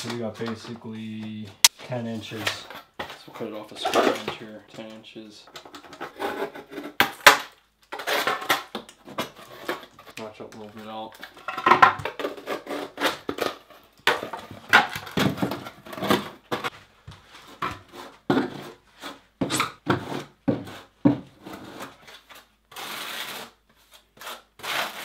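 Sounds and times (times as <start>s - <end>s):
knife cutting foam board: 17.6s - 25.0s.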